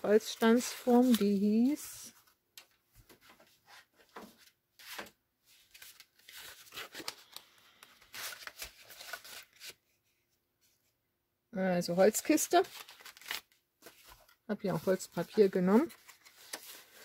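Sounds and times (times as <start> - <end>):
paper and cardboard rustling: 0.0 - 2.3, 3.0 - 9.8, 12.0 - 17.0
packet being handled: 12.6 - 14.4.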